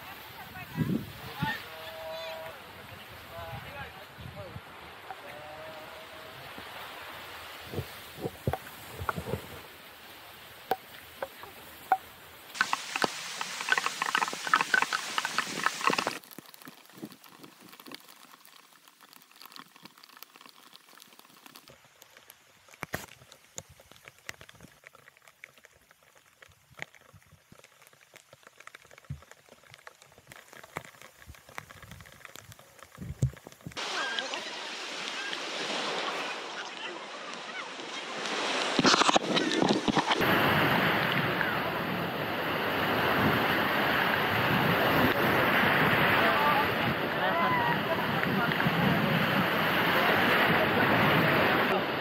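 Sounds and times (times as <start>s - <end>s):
surf: 0.0s - 16.4s, 33.1s - 52.0s
raindrops hitting microphone: 0.0s - 52.0s
wind on microphone: 0.4s - 4.8s, 7.5s - 9.7s
raindrops ticking on camera: 10.4s - 35.2s.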